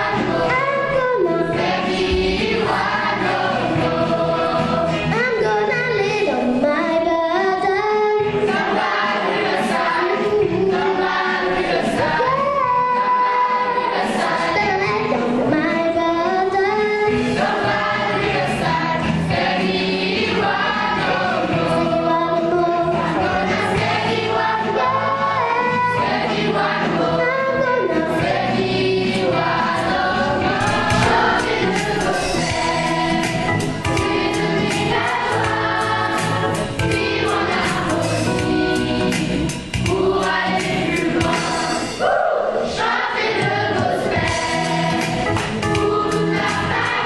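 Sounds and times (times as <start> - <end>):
children's choir singing: 0.0 - 47.0.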